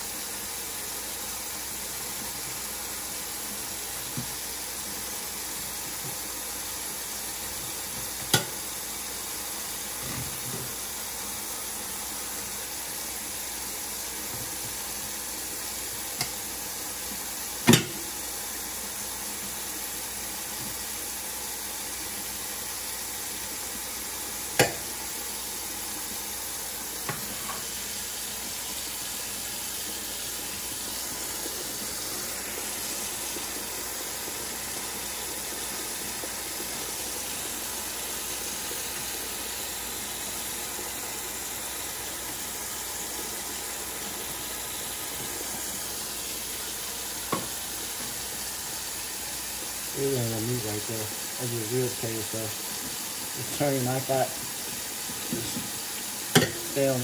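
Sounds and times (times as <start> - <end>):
faucet running into sink: 0.0 - 57.0.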